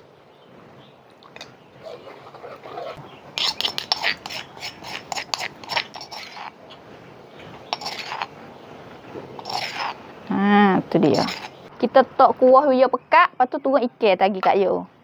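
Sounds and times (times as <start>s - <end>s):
spoon scraping stone mortar: 1.8s - 6.6s, 7.7s - 8.4s, 9.3s - 10.0s, 11.0s - 11.6s.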